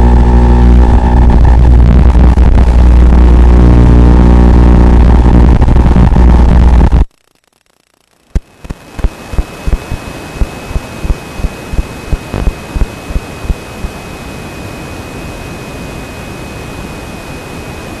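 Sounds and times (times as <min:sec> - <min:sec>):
static hiss with high whine: 0:00.0 - 0:18.0.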